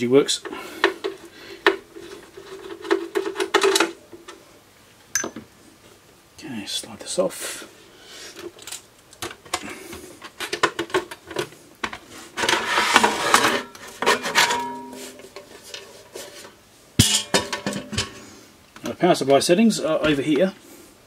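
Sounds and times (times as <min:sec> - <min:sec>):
metal casing scraping: 0:10.2 - 0:18.4.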